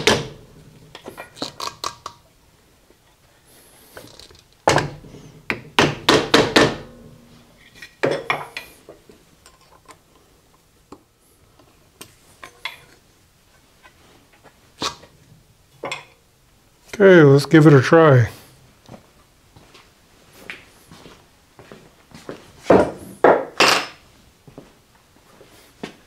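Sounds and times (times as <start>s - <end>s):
sharp metallic knocks: 4.7s - 8.5s.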